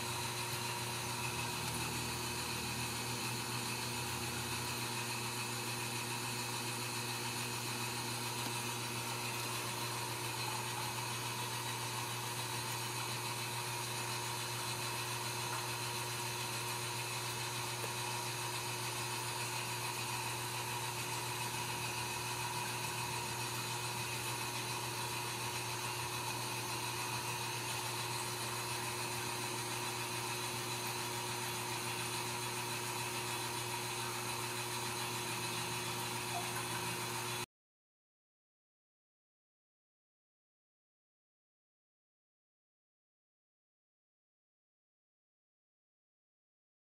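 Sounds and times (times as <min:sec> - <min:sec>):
steady mechanical hum: 0:00.0 - 0:37.5.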